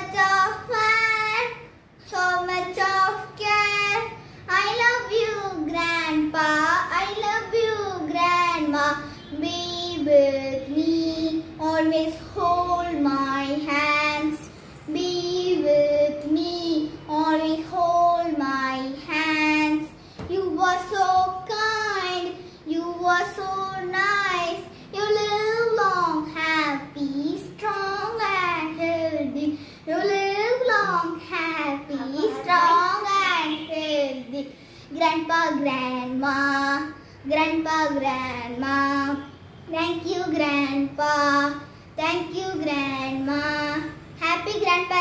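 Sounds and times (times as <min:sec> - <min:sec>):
girl singing unaccompanied: 0:00.0 - 0:45.0.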